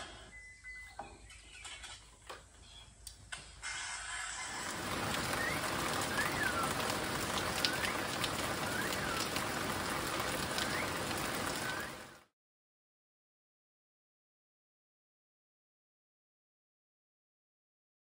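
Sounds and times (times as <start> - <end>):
rain falling on leaves: 4.4 - 12.3.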